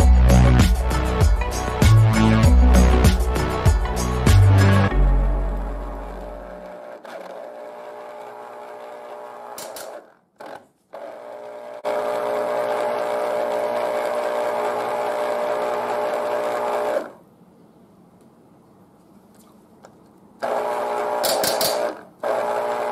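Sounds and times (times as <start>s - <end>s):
electric juicer motor humming: 4.8s - 10.1s, 10.9s - 17.2s, 20.4s - 22.9s.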